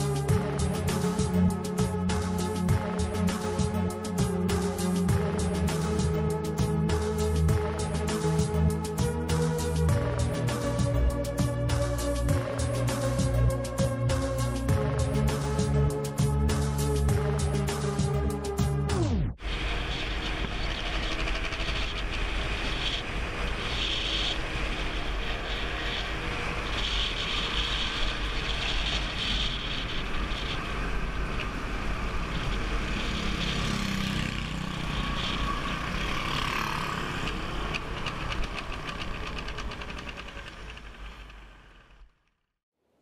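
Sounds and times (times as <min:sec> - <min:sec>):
road noise: 0:00.0 - 0:42.5
wind rumbling on microphone: 0:19.4 - 0:36.3
motor scooter engine: 0:19.6 - 0:42.1.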